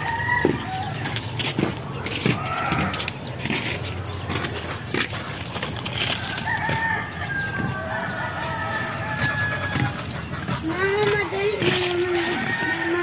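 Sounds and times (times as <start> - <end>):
rooster crowing: 0.0 - 1.1, 6.0 - 10.1, 12.1 - 13.0.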